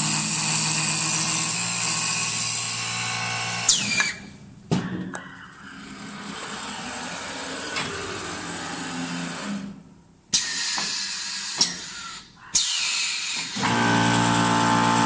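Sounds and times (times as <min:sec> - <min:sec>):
wood lathe running: 0:13.6 - 0:15.0.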